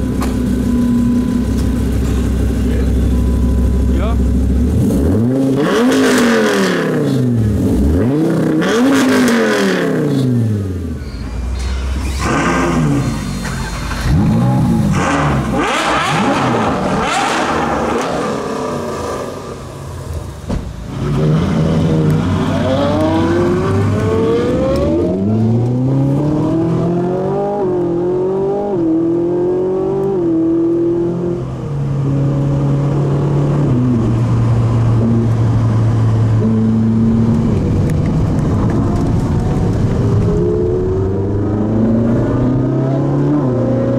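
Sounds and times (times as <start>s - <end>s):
sports car engines revving: 0.0s - 11.1s, 11.8s - 43.9s
car engine accelerating through upshifts: 4.6s - 10.8s, 13.8s - 19.7s, 20.9s - 43.9s.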